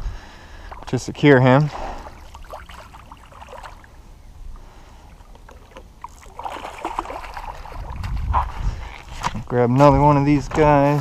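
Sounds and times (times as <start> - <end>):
fish splashing in water: 2.0 - 4.0, 5.1 - 8.2.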